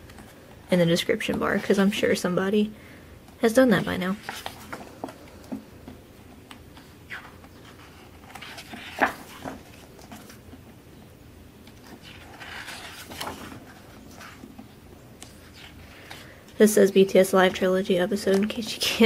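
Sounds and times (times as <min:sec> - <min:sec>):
paper rustling: 0:03.8 - 0:05.6, 0:06.5 - 0:10.7, 0:11.6 - 0:16.3
paper page flapping: 0:04.1 - 0:05.6, 0:06.7 - 0:10.6, 0:11.7 - 0:14.6.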